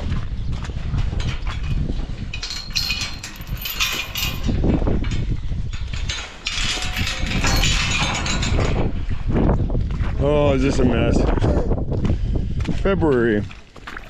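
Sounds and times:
wind buffeting microphone: 0.0s - 14.0s
metal gate panels clattering: 1.2s - 9.1s.

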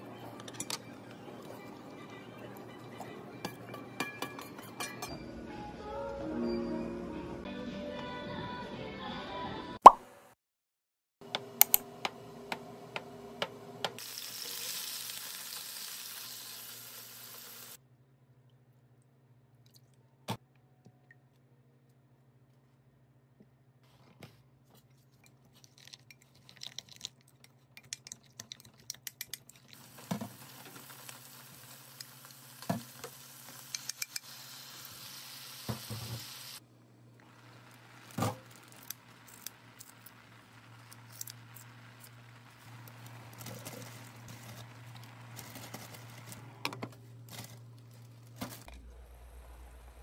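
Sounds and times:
tofu sizzling in frying pan: 14.0s - 17.8s, 29.8s - 36.6s.

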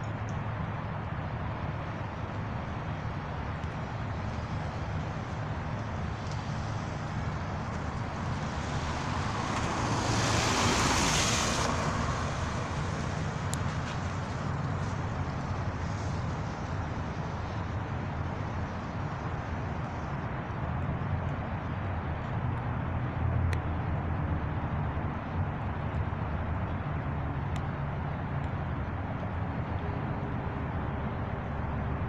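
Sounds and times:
street traffic noise: 0.0s - 32.0s
vehicle passing close: 6.0s - 16.6s.

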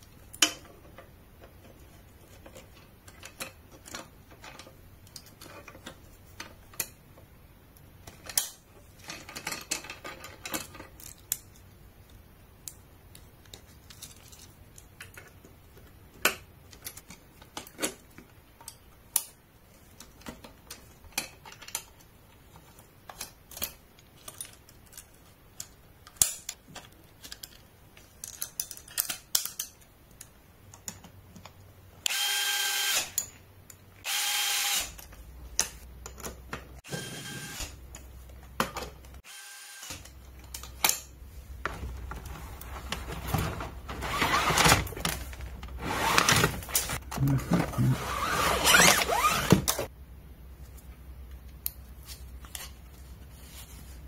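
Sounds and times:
power tool whine: 32.1s - 33.1s, 34.0s - 34.9s, 36.9s - 37.7s, 39.2s - 40.0s.

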